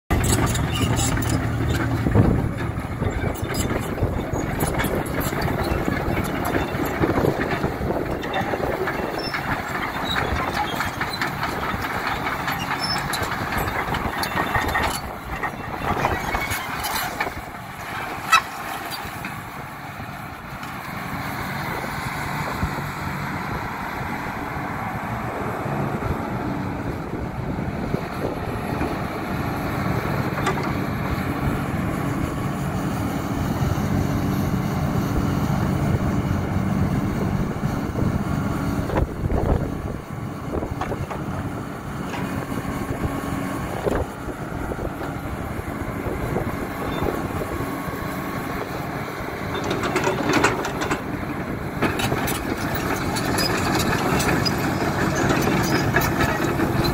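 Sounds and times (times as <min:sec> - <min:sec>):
excavator diesel engine running: 0:00.1 - 0:56.9
machine clanks and knocks: 0:49.4 - 0:56.9.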